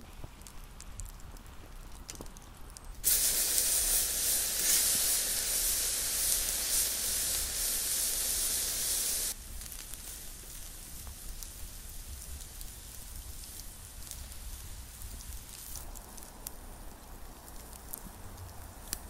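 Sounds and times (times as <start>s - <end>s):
wood fire crackling: 0.0s - 19.0s
steak sizzling on a grill: 3.0s - 18.0s.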